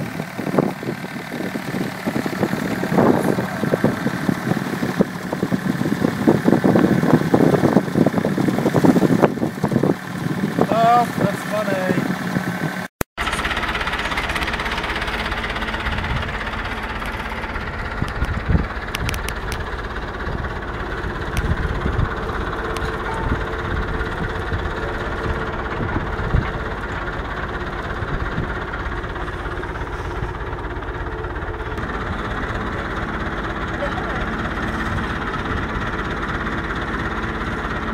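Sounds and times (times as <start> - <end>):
tractor engine running: 0.0 - 37.9
sharp clicks and knocks: 16.9 - 19.7.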